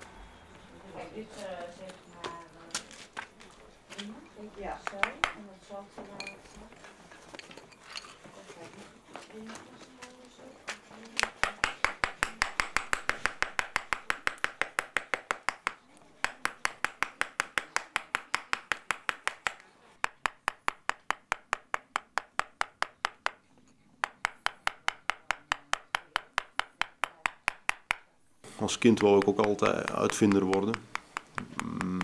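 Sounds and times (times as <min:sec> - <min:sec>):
mallet striking chisel into stone: 0:04.8 - 0:05.4, 0:11.2 - 0:23.4, 0:24.0 - 0:28.1, 0:28.8 - 0:32.0.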